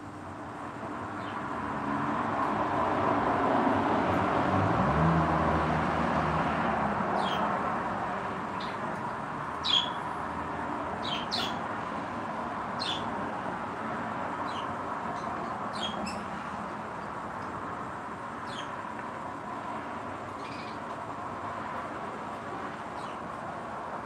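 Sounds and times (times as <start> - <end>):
small birds chirping: 1.0 - 1.5, 7.1 - 7.6, 8.4 - 10.1, 11.0 - 11.7, 12.7 - 13.2, 14.3 - 19.2, 20.1 - 21.1, 22.6 - 23.4.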